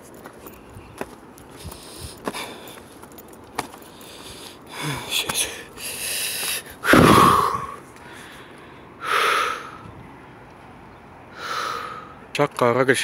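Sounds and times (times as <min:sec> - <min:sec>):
heavy breathing: 0:01.5 - 0:03.0, 0:03.8 - 0:09.9, 0:11.3 - 0:12.3.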